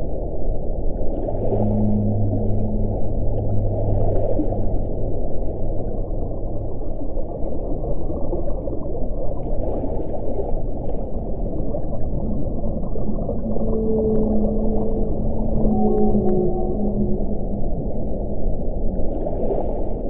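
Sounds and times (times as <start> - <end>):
underwater water noise rumble: 0.0 - 20.0
whale moaning: 1.4 - 7.1, 12.0 - 18.8.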